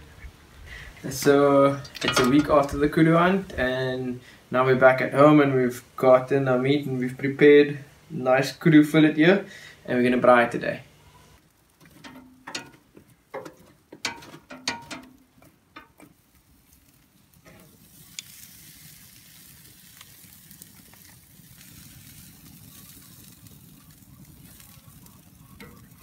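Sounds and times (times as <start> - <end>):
metal tongs clinking on grill: 1.8 - 2.8, 11.9 - 12.8, 13.4 - 16.1
meat sizzling: 11.3 - 26.0.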